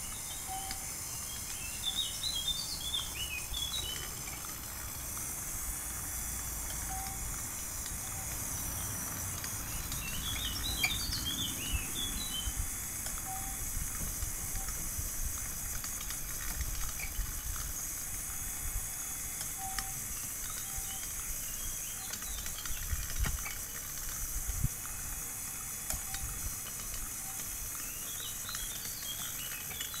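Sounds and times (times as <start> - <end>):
birds chirping: 0.0 - 4.5, 9.6 - 12.6
steady high hiss: 0.0 - 30.0.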